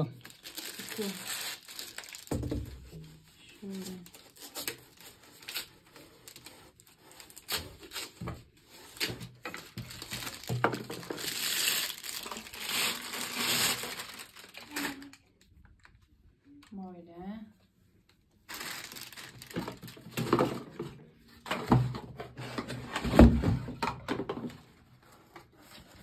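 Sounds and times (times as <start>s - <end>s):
packaging crinkling and rustling: 0.0s - 16.1s, 18.4s - 22.0s.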